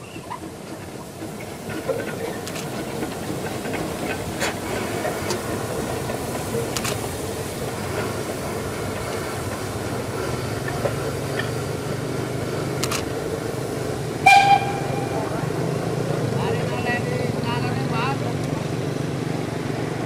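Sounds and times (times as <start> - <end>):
steam locomotive rumble: 0.0 - 20.0
faint clicks: 12.8 - 13.1
high train whistle toot: 14.2 - 15.6.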